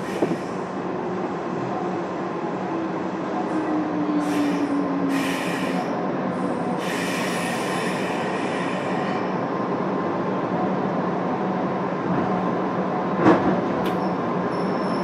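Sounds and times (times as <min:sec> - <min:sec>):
train running rumble: 0:00.0 - 0:15.0
high-pitched wheel squeal: 0:14.0 - 0:15.0.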